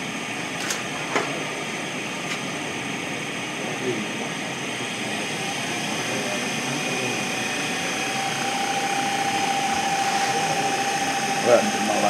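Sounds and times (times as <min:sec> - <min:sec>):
lathe whine: 0:00.0 - 0:12.0
wood lathe humming: 0:04.6 - 0:12.0.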